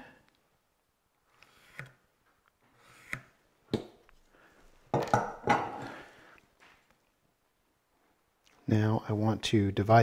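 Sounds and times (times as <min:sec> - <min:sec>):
tools knocking on wooden bench: 0:04.9 - 0:05.8.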